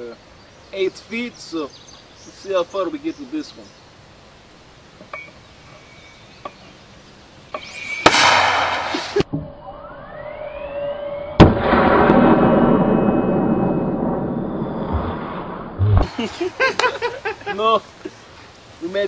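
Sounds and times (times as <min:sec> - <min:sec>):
rush of noise: 0:07.6 - 0:09.3, 0:11.4 - 0:17.6
rising whistle: 0:07.6 - 0:15.8
mortar firing bang: 0:08.0 - 0:09.3, 0:11.4 - 0:14.3.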